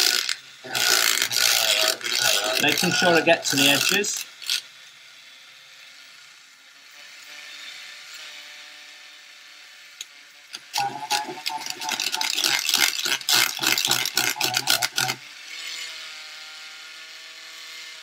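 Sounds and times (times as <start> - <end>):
paint stirrer motor whirring: 0.0 - 4.9, 10.0 - 16.2.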